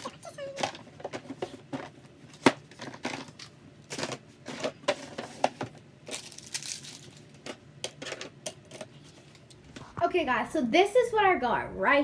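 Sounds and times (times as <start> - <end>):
objects clattering: 0.0 - 10.0.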